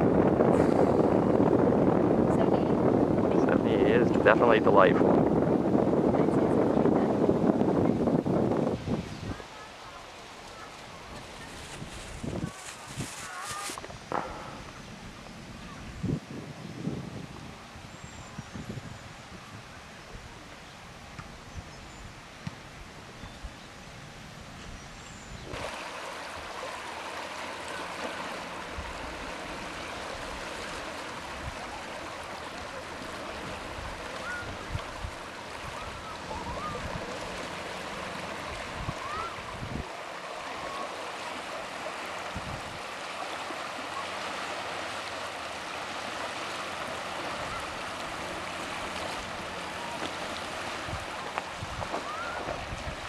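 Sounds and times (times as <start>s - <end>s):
waves lapping on stones: 9.4s - 14.7s, 25.5s - 53.0s.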